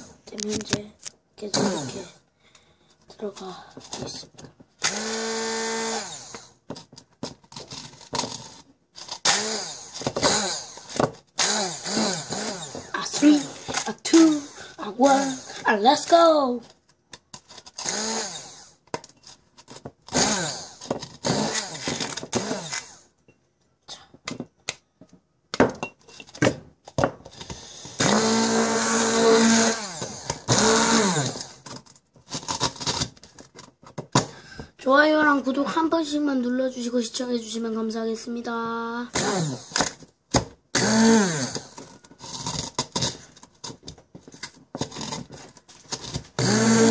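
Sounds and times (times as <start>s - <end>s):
electric grinder motor: 4.8s - 6.6s, 8.2s - 15.6s, 17.8s - 18.8s, 20.1s - 23.0s, 27.9s - 31.6s, 39.1s - 39.9s, 40.8s - 42.8s, 46.4s - 46.9s.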